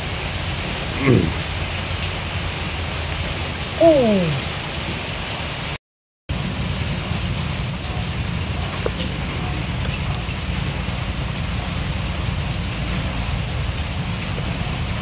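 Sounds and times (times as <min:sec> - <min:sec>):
fire hissing and crackling: 0:06.3 - 0:15.0.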